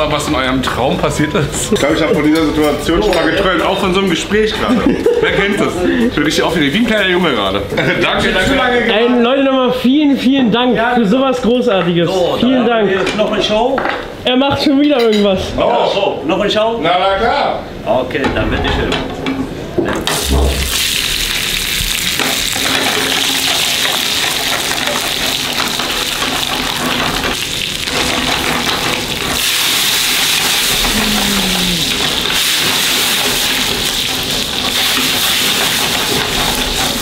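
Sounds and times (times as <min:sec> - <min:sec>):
food sizzling on hot surface: 0:20.1 - 0:37.0.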